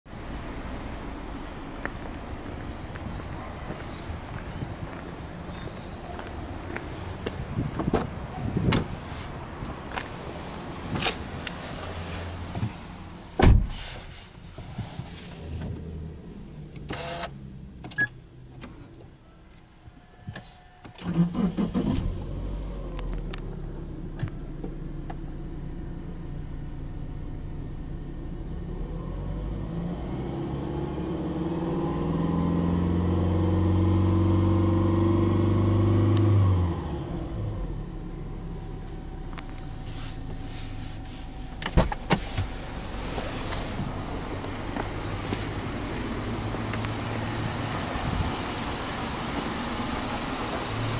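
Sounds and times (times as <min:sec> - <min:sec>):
car engine starting and idling: 0:00.1 - 0:19.3, 0:20.3 - 0:50.9
car engine revving: 0:28.1 - 0:50.9.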